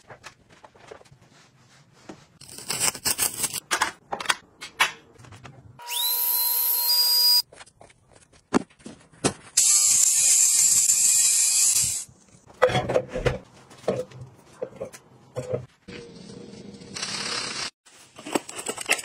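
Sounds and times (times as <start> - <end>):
small electric motor whirring: 9.6 - 12.1.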